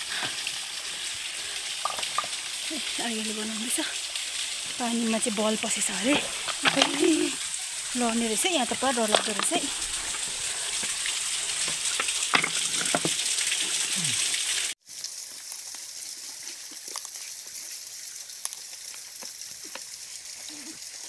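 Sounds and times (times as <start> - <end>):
stream water flowing: 0.0 - 21.0
stones and gravel clicking: 1.8 - 2.4, 6.0 - 7.2, 8.7 - 11.0.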